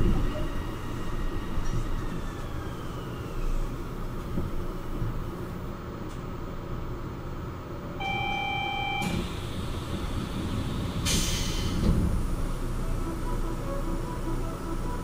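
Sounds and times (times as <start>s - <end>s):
train humming: 0.0s - 15.0s
electronic beep: 8.0s - 9.1s.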